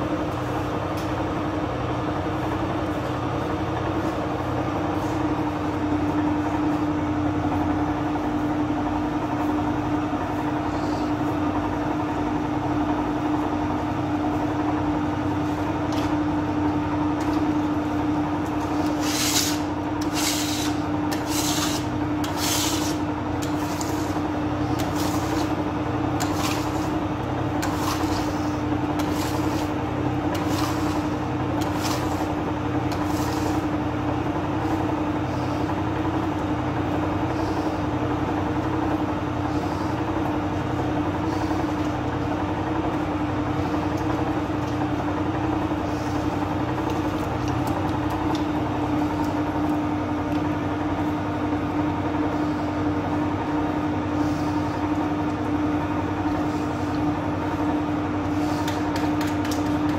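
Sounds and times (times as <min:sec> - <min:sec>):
dough kneading machine humming: 0:00.0 - 0:59.9.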